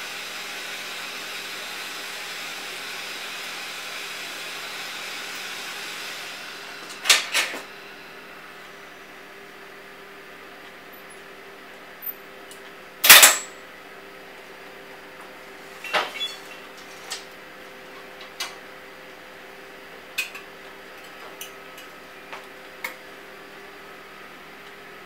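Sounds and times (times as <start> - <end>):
steady hum: 5.6 - 12.0
metal tools clanking: 15.8 - 17.2.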